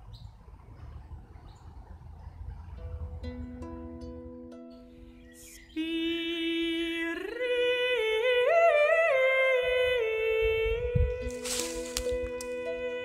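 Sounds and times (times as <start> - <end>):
slow melody of held notes: 2.8 - 13.0.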